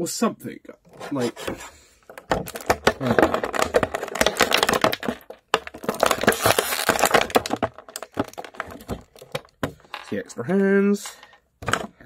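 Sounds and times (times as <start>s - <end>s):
plastic packaging crinkling: 2.1s - 9.6s.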